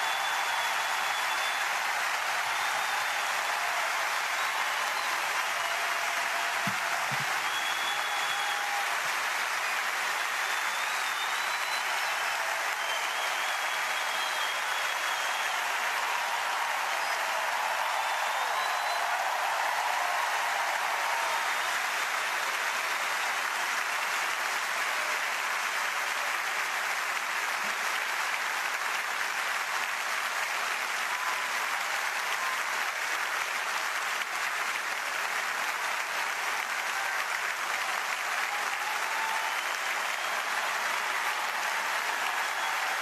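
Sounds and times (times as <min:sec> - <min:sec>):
faint whistles: 0:00.0 - 0:01.9, 0:07.2 - 0:08.8, 0:10.4 - 0:15.8, 0:16.9 - 0:19.5
crowd applauding: 0:00.0 - 0:43.0.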